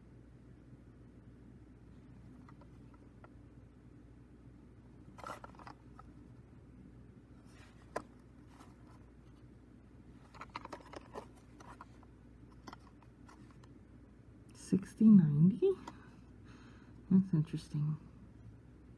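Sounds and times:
low steady hum: 0.0s - 18.9s
plastic cassette case handling: 2.0s - 3.4s, 5.1s - 6.2s, 7.4s - 9.1s, 10.1s - 13.8s.

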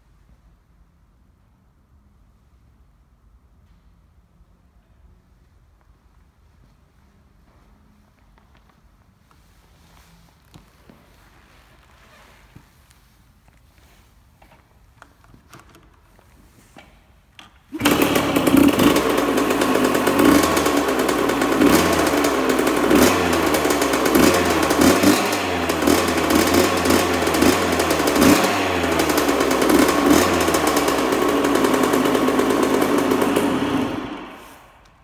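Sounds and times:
two-stroke engine revving: 17.7s - 34.7s.

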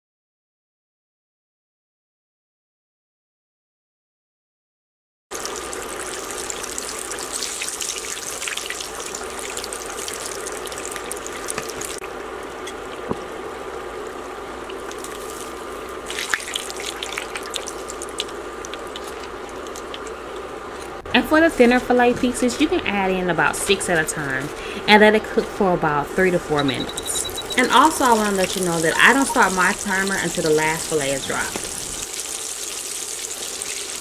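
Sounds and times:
fish deep-frying in hot oil: 5.3s - 20.2s, 27.3s - 34.0s.

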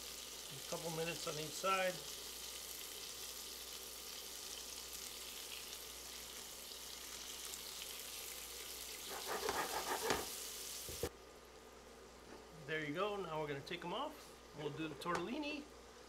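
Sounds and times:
shrimp sizzling in skillet: 0.0s - 11.1s
spatula scraping pan: 9.0s - 10.4s.

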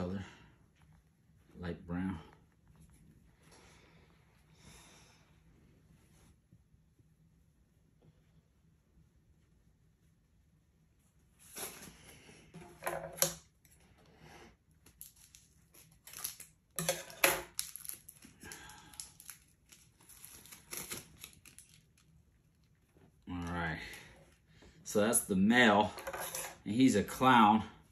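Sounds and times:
fabric and tape rustling: 14.7s - 24.5s.

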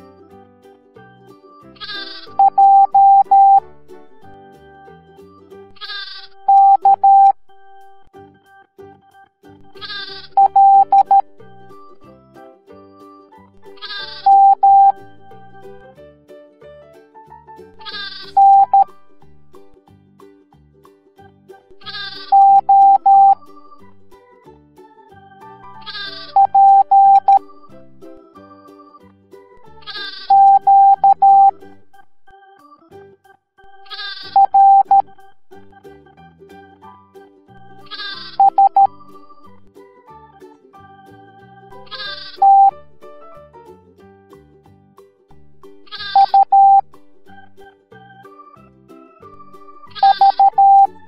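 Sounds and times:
cheerful children's music: 0.0s - 51.0s
sheep bleating: 1.8s - 2.3s, 5.8s - 6.3s, 9.8s - 10.4s, 13.8s - 14.3s, 17.9s - 18.3s, 21.8s - 22.4s, 25.8s - 26.4s, 33.9s - 34.4s, 37.8s - 38.4s, 41.9s - 42.4s, 45.9s - 46.4s
morse code beeps: 1.8s - 3.6s, 5.8s - 8.1s, 9.6s - 12.0s, 13.8s - 15.8s, 17.9s - 19.0s, 21.9s - 23.7s, 25.8s - 27.6s, 29.9s - 32.3s, 33.6s - 35.5s, 37.6s - 39.3s, 41.8s - 42.8s, 45.9s - 47.6s, 49.9s - 51.0s.

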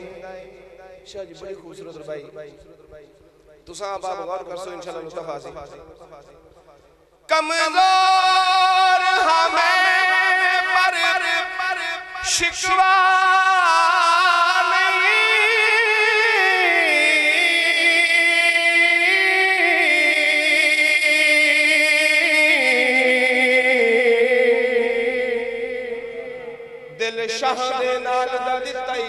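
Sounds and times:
man singing long ornamented note: 7.3s - 29.0s.

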